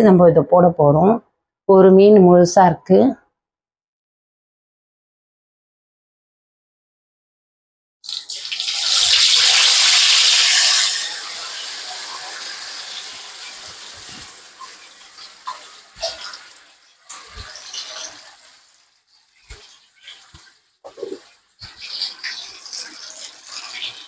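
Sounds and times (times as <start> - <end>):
fish sizzling in hot oil: 8.0 - 24.0.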